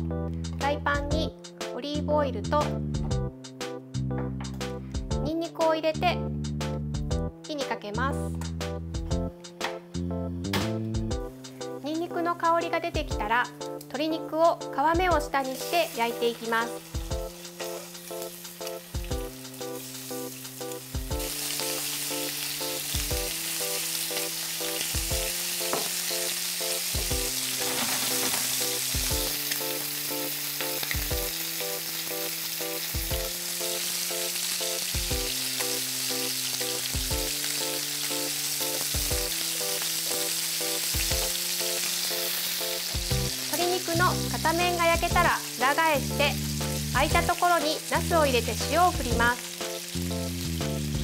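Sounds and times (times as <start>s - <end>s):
background music: 0.0s - 51.0s
chicken frying in oil: 15.3s - 51.0s.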